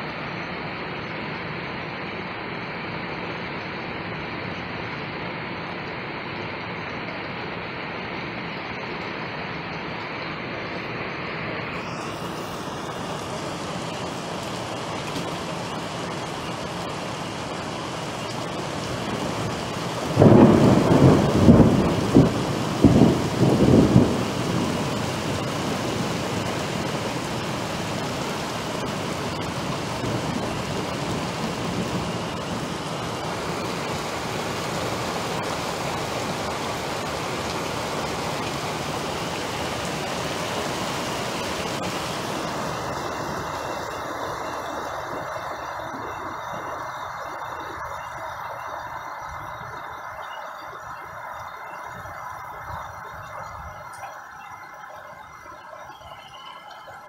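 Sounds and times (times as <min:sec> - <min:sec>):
heavy rain pouring: 0:00.0 - 0:57.0
thunder rumbling: 0:11.6 - 0:54.0.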